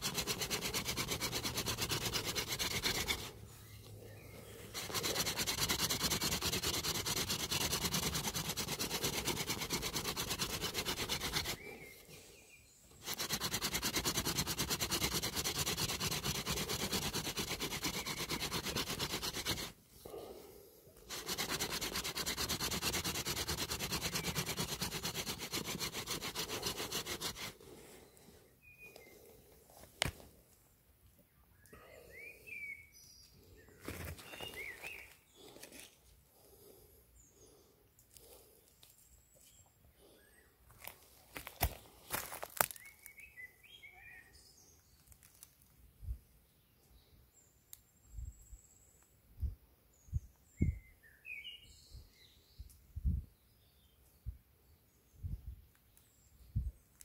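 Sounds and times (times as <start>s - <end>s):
wood grinding on wood: 0.0s - 3.4s, 4.6s - 12.0s, 13.0s - 20.3s, 21.0s - 27.7s.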